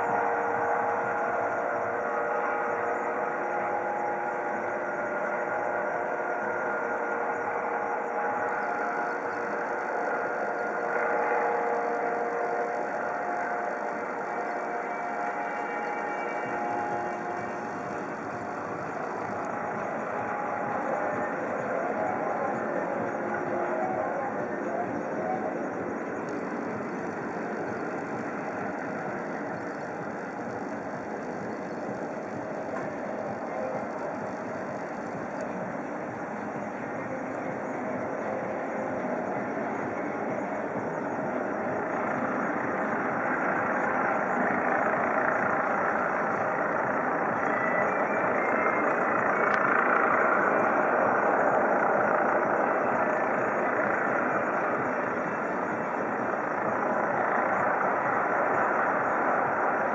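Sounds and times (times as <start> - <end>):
helicopter flying overhead: 0.0 - 59.9
whining tones: 0.0 - 59.9.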